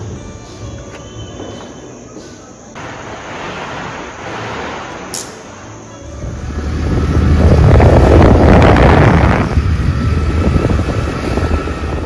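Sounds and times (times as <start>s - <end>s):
low engine rumble: 2.8s - 12.0s
wind buffeting microphone: 6.2s - 12.0s.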